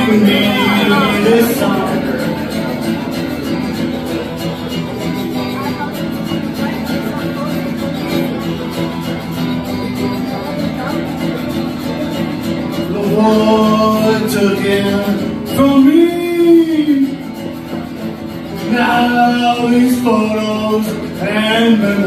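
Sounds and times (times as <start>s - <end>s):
man singing: 0.0s - 3.1s, 12.5s - 17.4s, 18.5s - 22.0s
acoustic guitar strumming: 0.0s - 22.0s.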